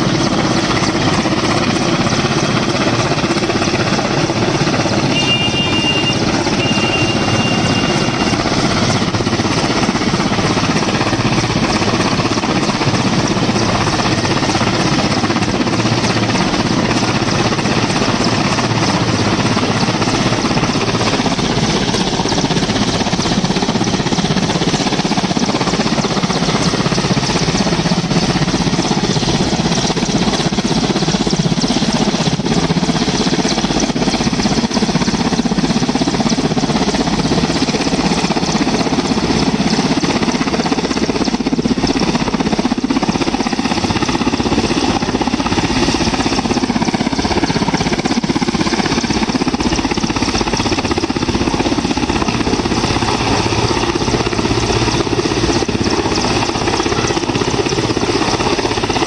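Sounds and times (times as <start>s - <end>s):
helicopter rotors and engines: 0.0s - 59.0s.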